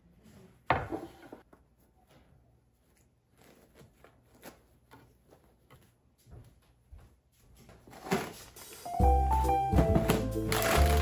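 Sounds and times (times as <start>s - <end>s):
cloth rustling: 2.8s - 6.2s.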